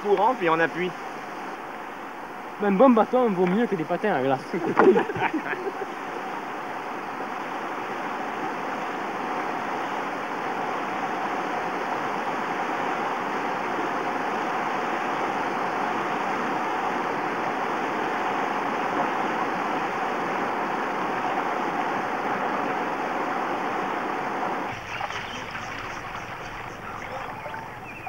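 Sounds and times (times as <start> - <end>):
river rapids rushing: 0.0 - 28.0.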